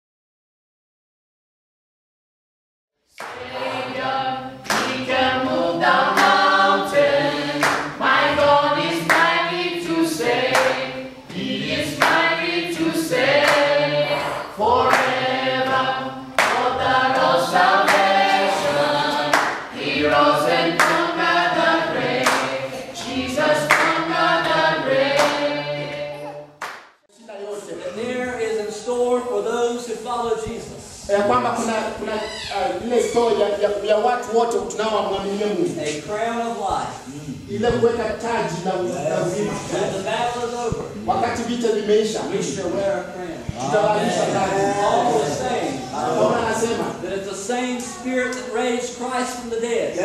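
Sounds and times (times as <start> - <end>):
hand claps: 3.2 - 3.5, 4.6 - 5.1, 6.1 - 6.4, 7.5 - 9.4, 10.4 - 10.8, 11.9 - 12.3, 13.4 - 13.8, 14.9 - 15.8, 16.4 - 18.3, 19.3 - 20.2, 20.8 - 21.1, 22.2 - 26.0, 26.6 - 26.9
group of voices singing: 3.2 - 26.6, 37.0 - 47.2.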